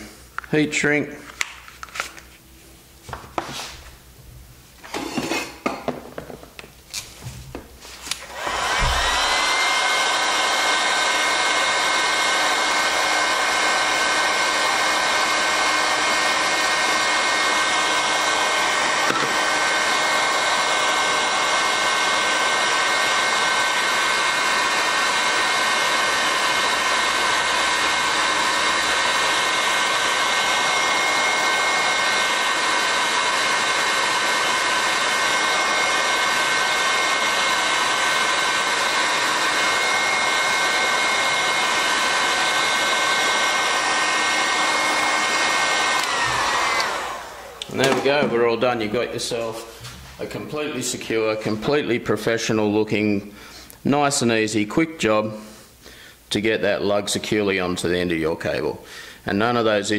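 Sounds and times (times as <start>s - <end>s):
heat gun blowing: 6.9s - 50.3s.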